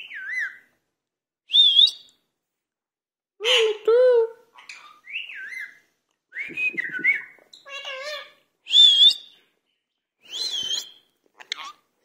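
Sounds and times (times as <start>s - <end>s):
parakeet whistled calls: 0.0s - 0.7s.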